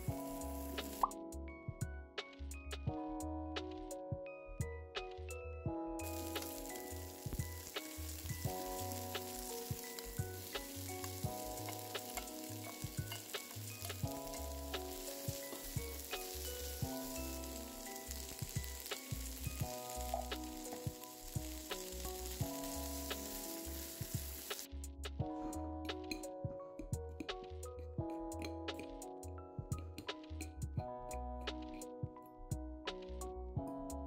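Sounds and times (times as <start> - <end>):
vegetables sizzling in a frying pan: 0.0 - 1.1, 6.0 - 24.8
background music with bass: 0.0 - 34.0.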